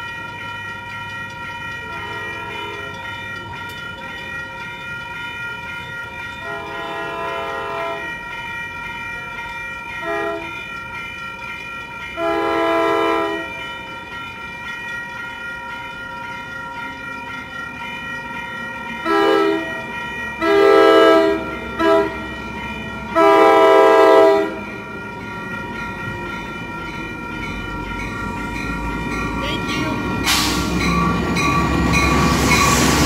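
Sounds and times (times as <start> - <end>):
grade crossing bell ringing: 0.0 - 33.0
train horn blasts: 1.9 - 3.0, 6.4 - 8.1, 10.0 - 10.6, 12.2 - 13.5, 19.0 - 19.8, 20.4 - 22.2, 23.1 - 24.6.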